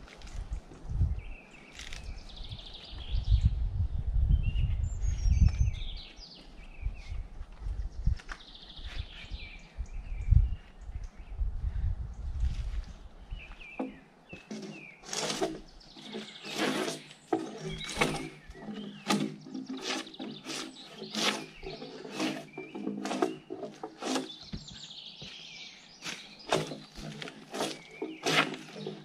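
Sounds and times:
birds chirping: 4.3 - 29.0
drawknife peeling bark: 14.4 - 24.5, 26.0 - 29.0.

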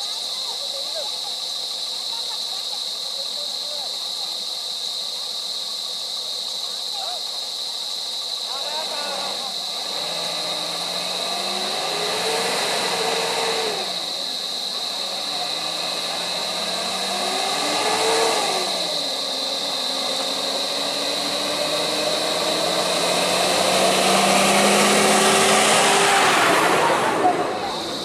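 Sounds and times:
steady high-pitched whine: 0.0 - 28.0
vehicle engines revving: 8.6 - 28.0.

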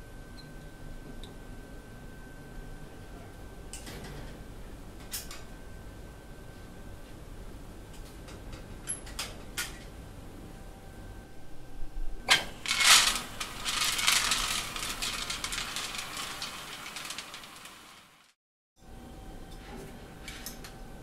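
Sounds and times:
ball mill charge rattling: 12.3 - 18.3.

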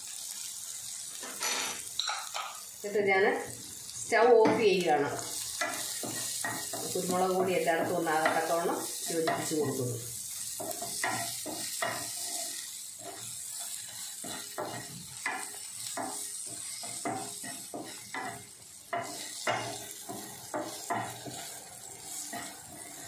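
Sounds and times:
light sizzle: 0.0 - 23.0
wooden spatula scraping frying pan: 10.5 - 23.0.

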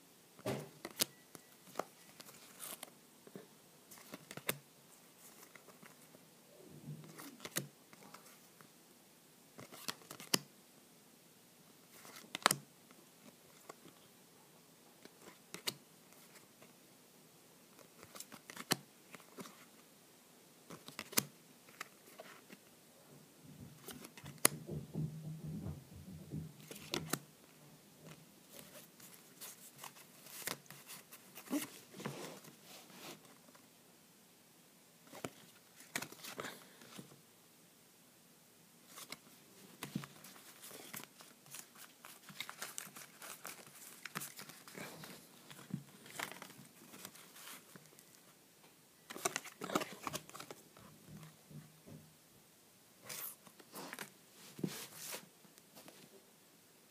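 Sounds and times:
cards flipped and clicking: 0.8 - 2.9, 7.1 - 8.1, 9.6 - 10.4, 12.0 - 12.6, 15.2 - 16.4, 17.8 - 19.6, 20.7 - 22.3, 26.7 - 27.2, 35.1 - 37.0, 39.8 - 48.1, 49.1 - 50.6.

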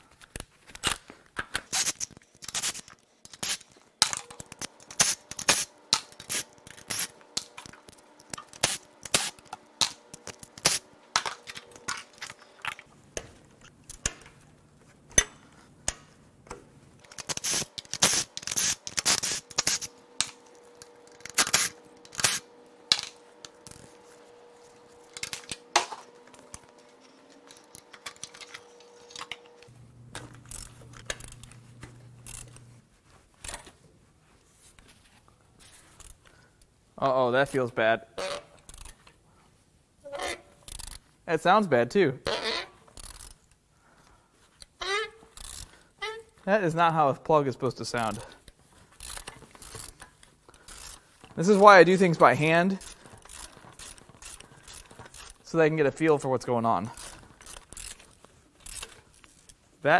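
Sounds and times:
faint steady hum: 0.0 - 59.9.

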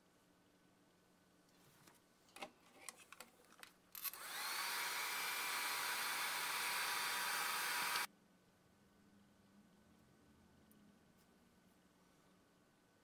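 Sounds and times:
hair dryer blowing: 4.2 - 8.1.

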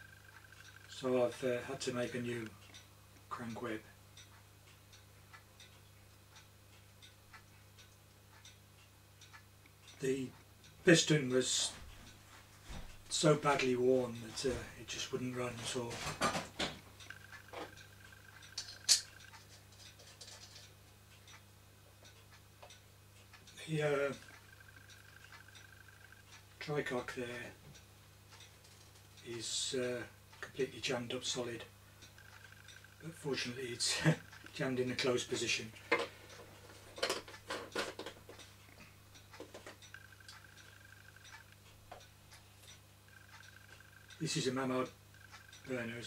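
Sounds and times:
faint low hum: 0.0 - 46.0
faint light ticks: 4.2 - 10.8
metallic clicks of toy: 17.0 - 20.7.

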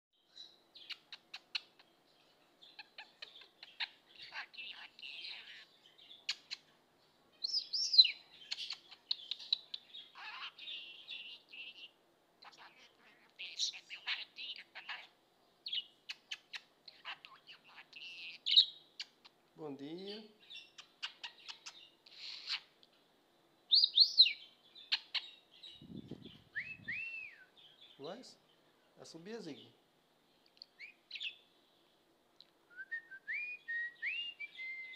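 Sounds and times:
budgerigar whistling and chirping: 15.7 - 19.2, 23.7 - 25.9, 26.5 - 27.6, 33.3 - 34.9
budgerigar whistling: 33.3 - 34.9.

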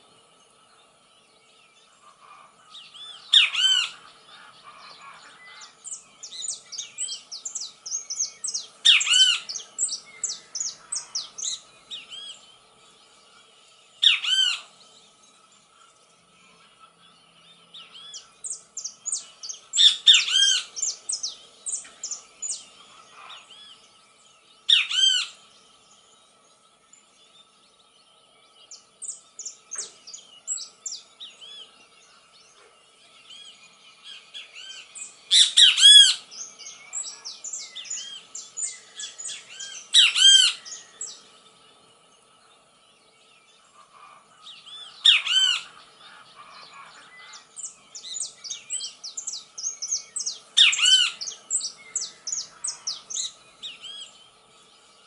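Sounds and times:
bird-like chirps and squawks: 2.0 - 5.8, 8.8 - 9.6, 19.8 - 20.9, 34.6 - 36.2, 43.7 - 47.5, 50.6 - 51.4.

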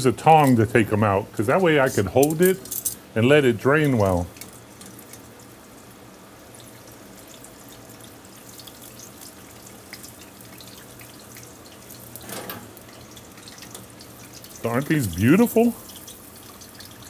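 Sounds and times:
oil sizzling and crackling: 0.0 - 17.0.

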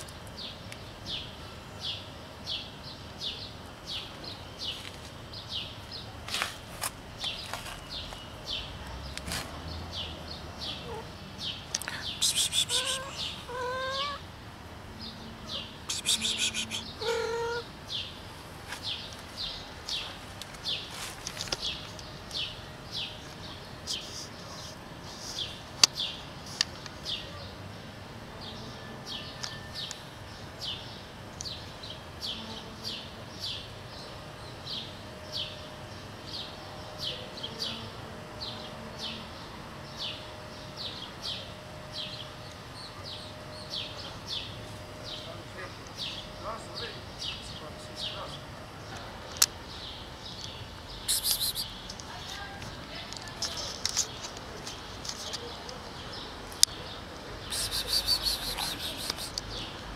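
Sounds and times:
small bird chirping: 10.0 - 14.2, 15.5 - 18.1, 49.7 - 52.5, 57.4 - 59.7.

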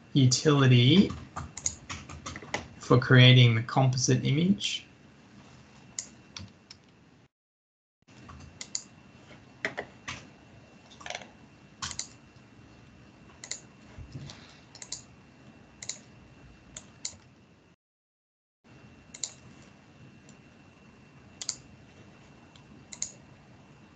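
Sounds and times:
mouse and keyboard clicks: 14.8 - 15.1, 21.4 - 21.6, 22.9 - 23.2.

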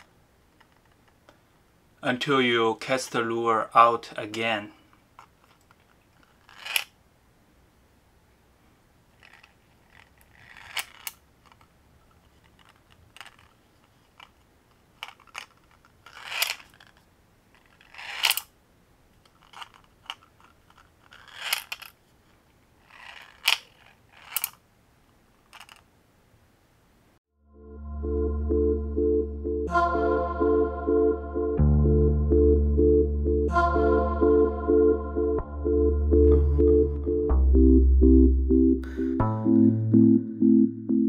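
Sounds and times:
steel balls rattling in plastic lure: 6.2 - 6.9, 9.2 - 11.6, 12.2 - 14.4, 15.0 - 18.5, 19.3 - 22.0, 22.8 - 24.6, 25.4 - 25.9.

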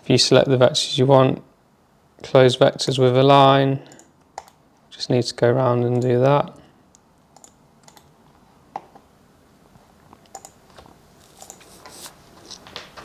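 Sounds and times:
computer mouse clicks: 3.9 - 4.6, 6.9 - 8.1, 10.2 - 10.6, 11.3 - 11.7.

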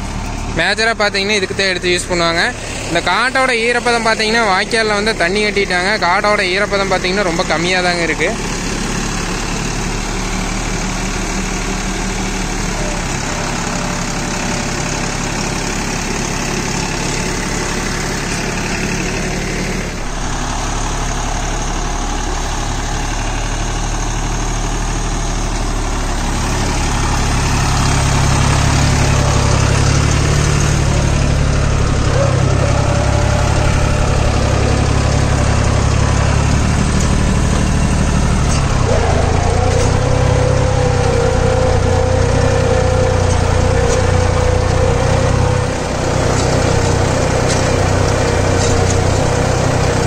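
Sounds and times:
tractor diesel engine running: 0.0 - 50.0.

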